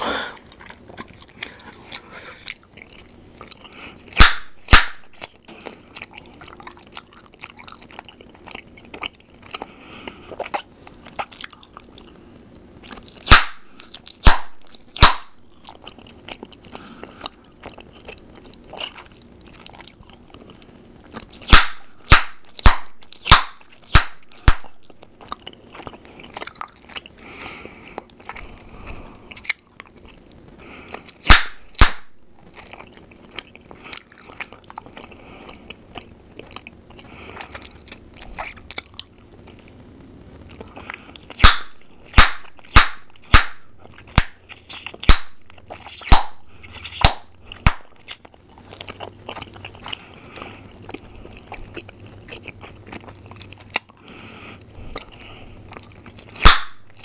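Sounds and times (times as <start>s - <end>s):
gum chewing wet smacking: 0.4s - 12.2s, 12.8s - 39.8s, 40.5s - 57.0s
bubble gum pops: 4.2s - 5.2s, 13.2s - 13.6s, 14.2s - 15.4s, 21.5s - 24.8s, 31.2s - 32.1s, 41.4s - 44.4s, 45.0s - 45.4s, 46.0s - 47.9s, 56.4s - 56.8s.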